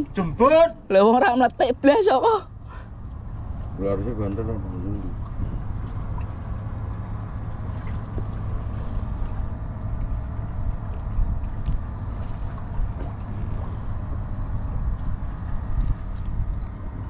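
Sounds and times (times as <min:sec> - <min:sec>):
wind rumbling on microphone: 0:04.5 - 0:17.0.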